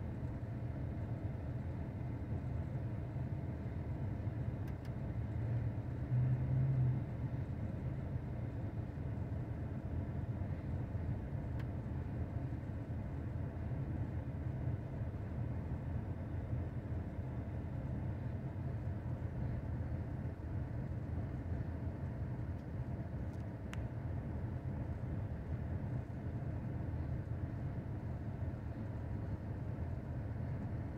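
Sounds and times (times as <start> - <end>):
low outdoor rumble: 0.0 - 30.9
faint click: 4.6 - 5.0, 22.5 - 23.9.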